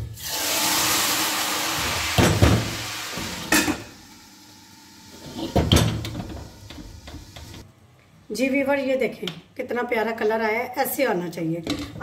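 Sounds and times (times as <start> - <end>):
hot fat sizzling in curry: 0.0 - 5.5.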